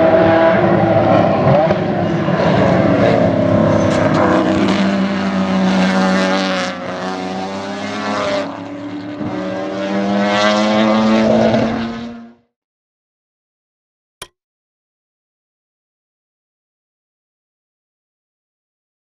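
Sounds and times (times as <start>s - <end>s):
race car engines revving: 0.0s - 12.5s.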